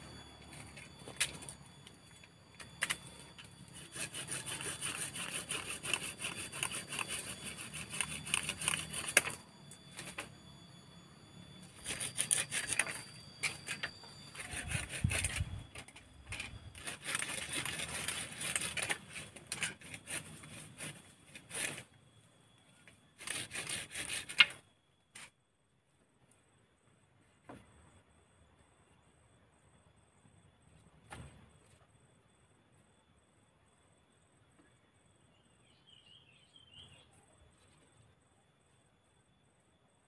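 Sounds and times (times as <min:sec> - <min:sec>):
knife scraping bamboo: 0:02.8 - 0:10.3, 0:11.7 - 0:21.9, 0:23.2 - 0:24.6.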